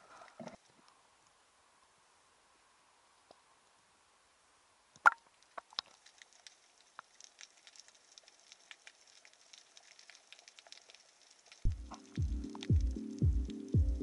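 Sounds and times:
underwater clicks and ticks: 0:05.0 - 0:14.0.

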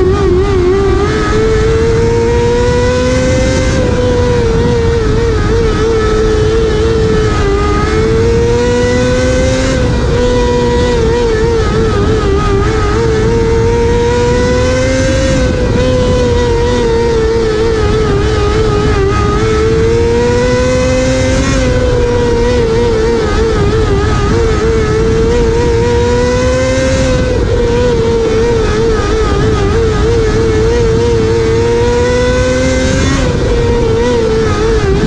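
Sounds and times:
race car engine revving: 0:00.0 - 0:35.0.

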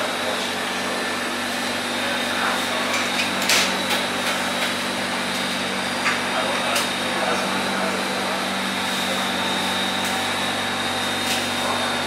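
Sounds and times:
electric meat grinder running: 0:00.0 - 0:12.0.

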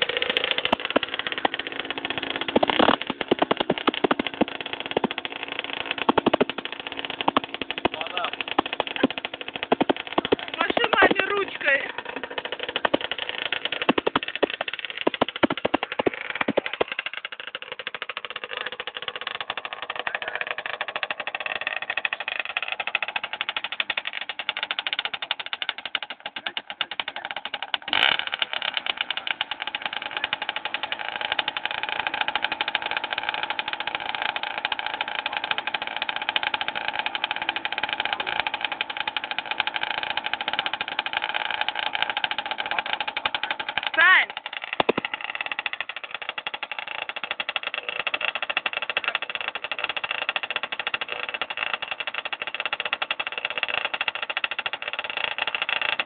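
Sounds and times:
rattling clicks: 0:00.0 - 0:56.0
vehicle engine running: 0:00.0 - 0:56.0
sharp knock: 0:44.8 - 0:45.1.

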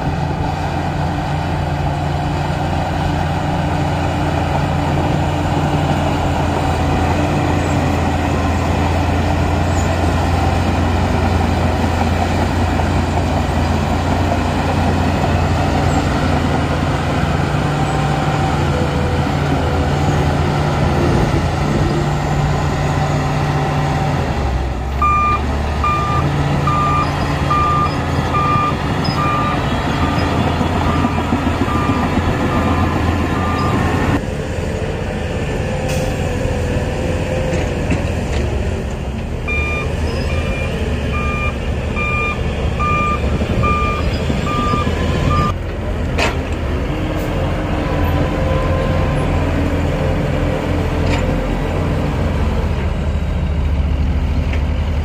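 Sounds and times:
bulldozer diesel engine running: 0:00.0 - 0:55.0
reversing alarm beeping: 0:25.0 - 0:34.0, 0:39.5 - 0:45.6.

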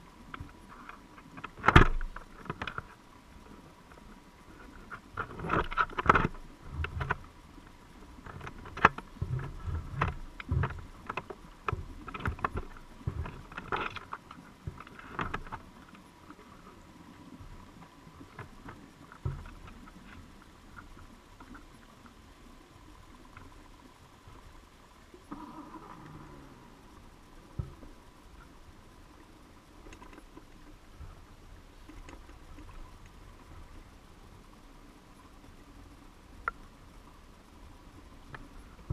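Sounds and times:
faint steady whine: 0:00.0 - 0:38.9
muffled underwater knocks: 0:08.2 - 0:14.0, 0:19.2 - 0:19.8.

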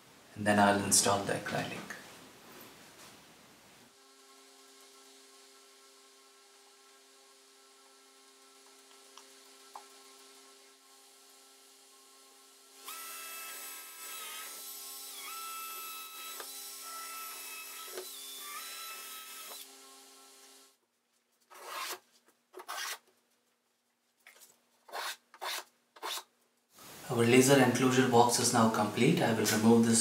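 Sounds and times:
drill motor whine: 0:12.6 - 0:20.6
short scraping rubs: 0:24.3 - 0:27.0.

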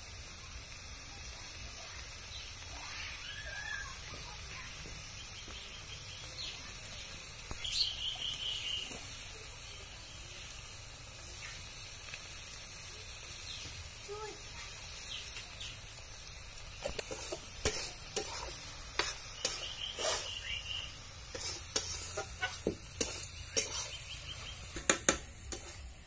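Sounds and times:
offal sizzling in a wok: 0:00.0 - 0:26.0
birds chirping: 0:02.2 - 0:09.7, 0:11.2 - 0:11.9, 0:13.2 - 0:14.2, 0:14.9 - 0:25.0
loud bird call: 0:07.6 - 0:08.9, 0:19.4 - 0:21.0.

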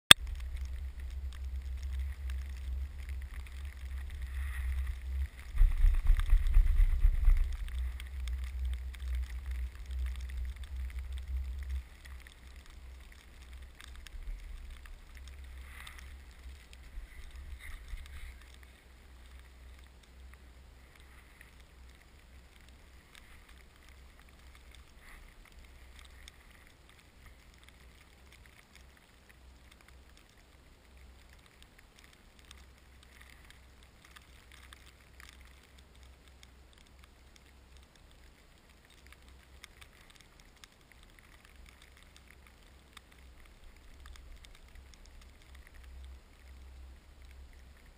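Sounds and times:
snow ticking on camera: 0:00.1 - 0:47.9
wind buffeting microphone: 0:00.4 - 0:09.7.

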